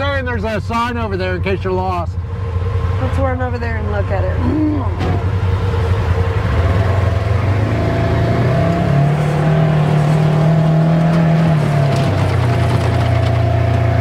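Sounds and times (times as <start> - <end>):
vehicle engine pulling away: 4.3 - 14.0.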